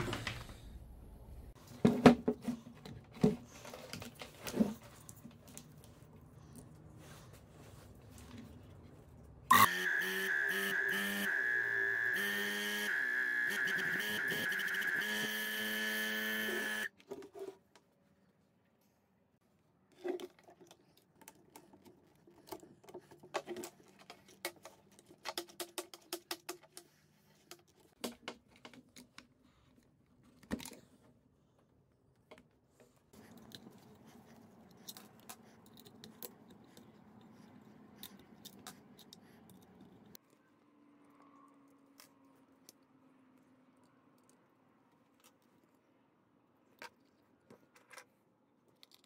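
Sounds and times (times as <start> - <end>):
clicks and knocks of parts handled: 46.7 - 49.0.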